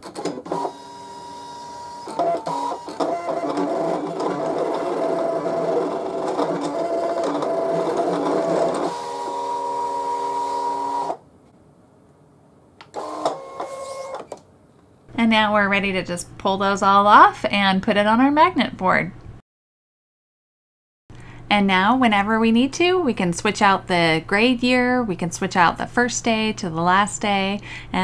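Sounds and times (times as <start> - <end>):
cutting machine motors whining: 0.0 - 11.2, 12.9 - 14.4.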